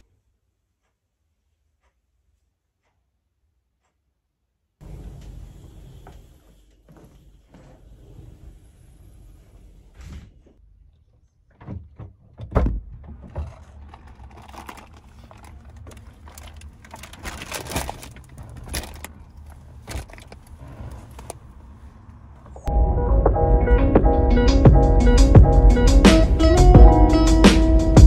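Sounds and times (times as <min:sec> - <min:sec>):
rustling: 0:13.0 - 0:22.7.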